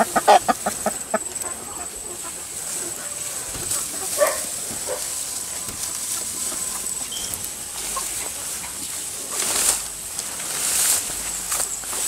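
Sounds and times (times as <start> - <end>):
chickens clucking softly: 0.0 - 9.4
noisy rustle: 0.0 - 12.0.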